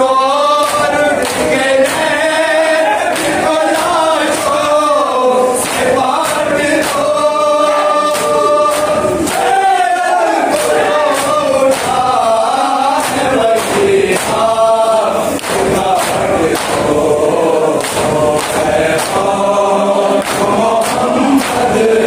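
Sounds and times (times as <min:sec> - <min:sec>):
crowd of men chanting: 0:00.0 - 0:22.0
hands slapping chests: 0:00.6 - 0:04.7, 0:05.6 - 0:09.7, 0:10.5 - 0:14.5, 0:15.3 - 0:17.1, 0:17.7 - 0:19.3, 0:20.1 - 0:21.8.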